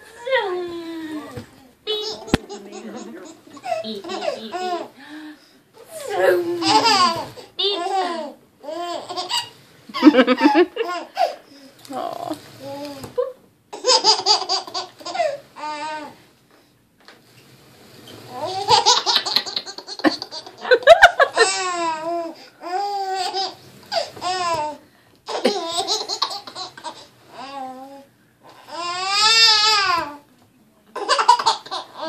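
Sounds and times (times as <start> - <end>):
baby laughing: 1.9 - 5.0, 6.6 - 11.4, 13.7 - 15.4, 18.5 - 24.6, 25.3 - 27.1, 31.0 - 32.0.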